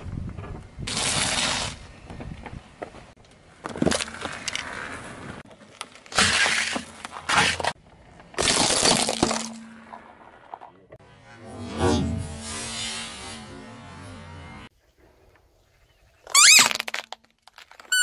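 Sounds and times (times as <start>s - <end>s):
tyre crushing small objects: 5.4s - 10.1s, 16.3s - 18.0s.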